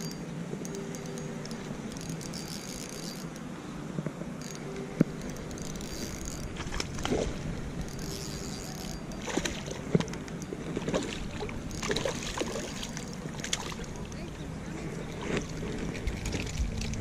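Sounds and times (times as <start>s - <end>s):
fish splashing in water: 10.7s - 14.1s.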